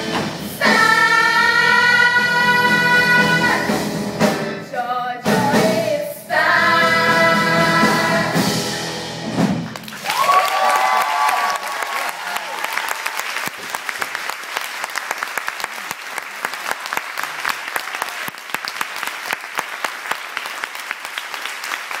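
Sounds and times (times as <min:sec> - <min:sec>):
audience applauding: 0:09.7 - 0:22.0.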